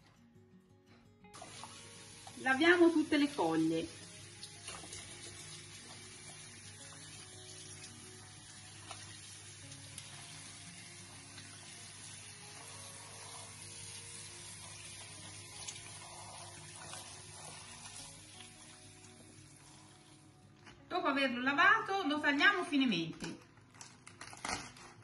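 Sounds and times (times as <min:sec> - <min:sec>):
background music: 0:00.0 - 0:25.0
tap water splashing: 0:01.4 - 0:02.4, 0:04.4 - 0:08.0, 0:08.8 - 0:10.2, 0:14.8 - 0:16.0.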